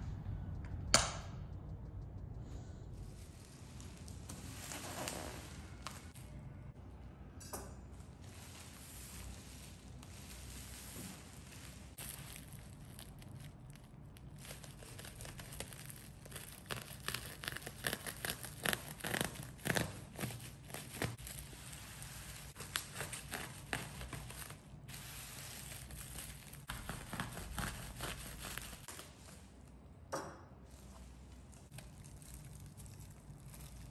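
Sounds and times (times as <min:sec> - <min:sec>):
plastic wrapping crinkling and tearing: 0:08.0 - 0:29.7, 0:30.7 - 0:33.9.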